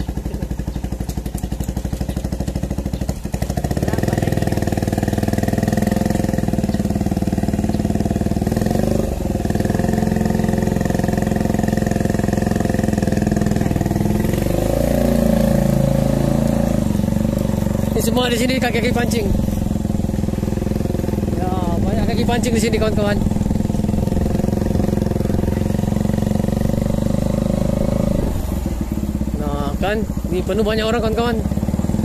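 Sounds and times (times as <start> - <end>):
motorcycle engine at low revs: 0.0 - 32.0.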